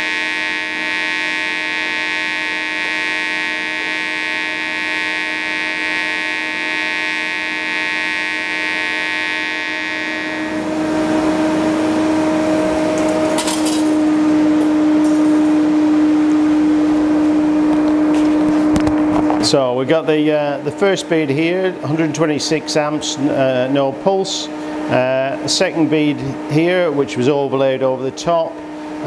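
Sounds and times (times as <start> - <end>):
welding arc crackles: 0.0 - 10.6
welding arc buzzing: 0.0 - 19.6.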